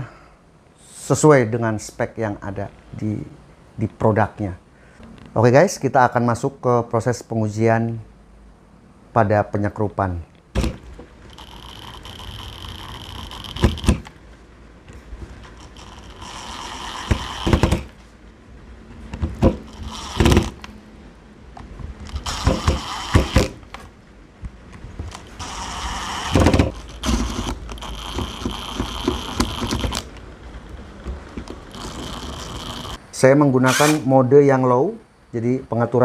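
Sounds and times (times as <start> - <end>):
electric motor whine: 15.6 - 18.0, 25.2 - 30.1, 31.4 - 33.0.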